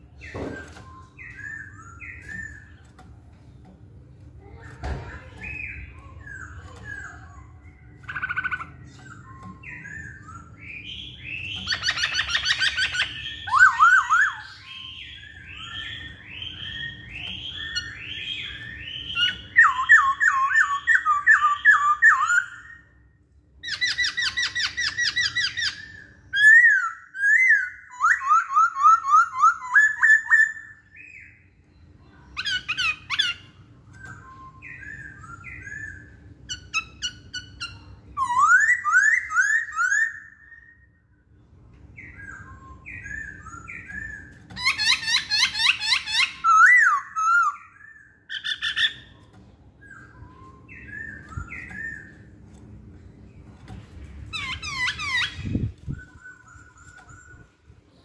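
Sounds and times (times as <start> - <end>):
bird singing whistled notes: 0.1 - 2.9, 5.4 - 23.0, 32.4 - 41.0, 42.0 - 49.2, 49.8 - 52.4, 54.3 - 58.0.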